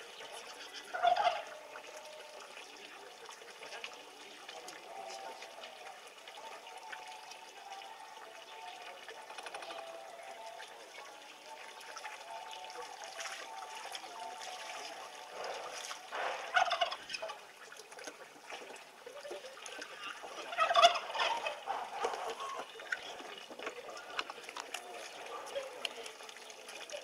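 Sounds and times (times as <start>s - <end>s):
water running into wooden tub: 0.0s - 27.0s
fowl-like bird calls: 0.4s - 1.8s, 16.4s - 17.3s, 20.0s - 23.2s.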